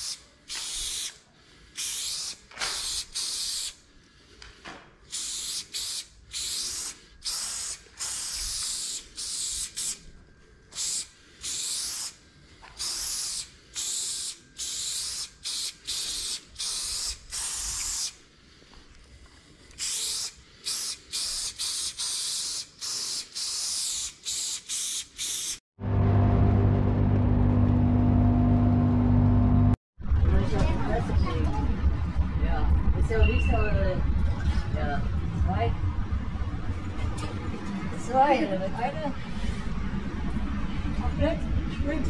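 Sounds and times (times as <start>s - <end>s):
spray paint can hissing: 0.0s - 1.2s, 1.8s - 3.8s, 5.1s - 10.0s, 10.7s - 18.2s, 19.8s - 25.6s.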